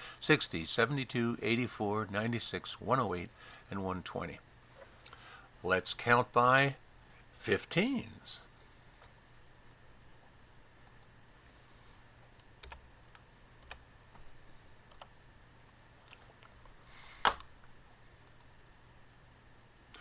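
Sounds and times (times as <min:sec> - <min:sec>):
faint low hum: 0:00.0 - 0:20.0
computer keystrokes: 0:12.6 - 0:13.8.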